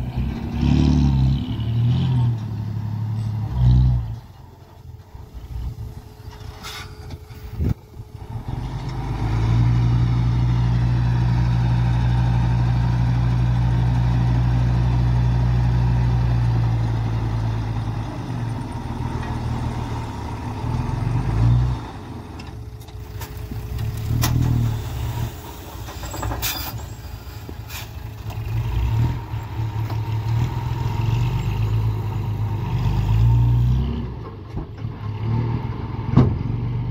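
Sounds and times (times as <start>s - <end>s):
diesel truck engine revving: 0.0s - 4.5s, 8.2s - 22.6s, 27.1s - 36.9s.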